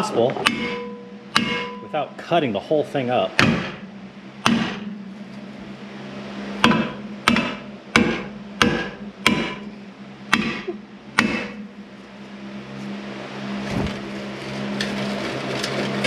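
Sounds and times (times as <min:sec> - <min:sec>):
steady low hum: 0:00.0 - 0:16.0
hammer striking metal: 0:00.4 - 0:02.1, 0:03.4 - 0:05.1, 0:06.6 - 0:11.7.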